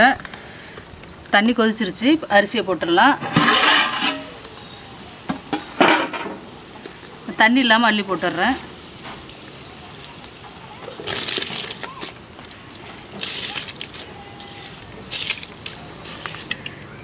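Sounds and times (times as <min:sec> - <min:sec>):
rice splashing into boiling water: 0:03.3 - 0:16.9.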